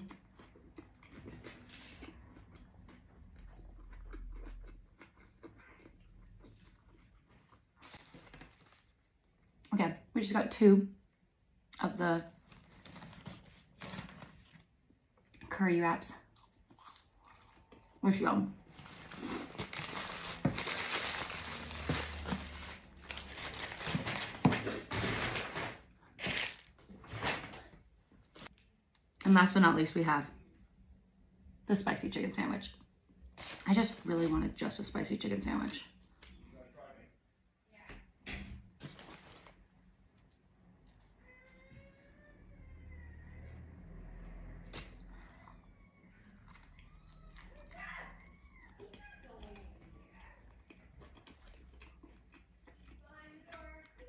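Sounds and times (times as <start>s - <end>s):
person chewing: 0.0s - 9.7s, 16.2s - 18.0s, 18.7s - 23.2s, 44.7s - 47.6s, 48.2s - 53.0s
paper wrapping crinkling: 7.8s - 9.1s, 12.4s - 14.6s, 18.8s - 27.6s, 38.8s - 39.6s.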